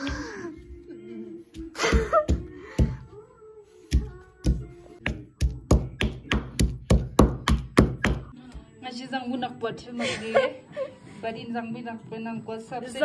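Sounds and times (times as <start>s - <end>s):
stone pestle pounding in mortar: 3.9s - 8.3s.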